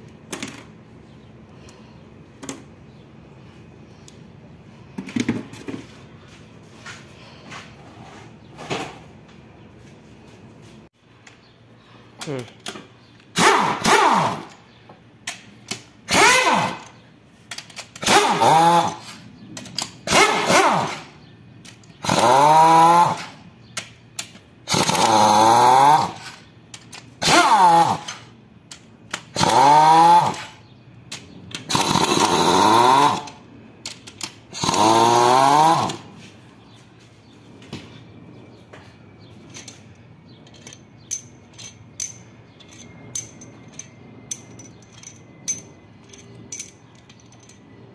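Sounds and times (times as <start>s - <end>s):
power tool spinning bolts: 16.0s - 21.1s, 21.7s - 23.4s, 24.2s - 30.6s, 31.6s - 36.1s
metal bolts clinking: 16.7s - 18.1s, 33.2s - 34.5s, 39.3s - 47.9s.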